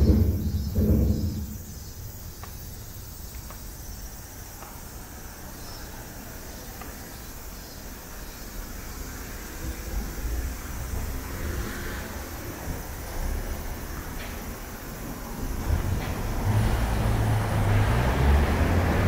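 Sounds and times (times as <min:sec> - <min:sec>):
faint hum of traffic: 0:00.0 - 0:19.0
low traffic rumble: 0:00.0 - 0:19.0.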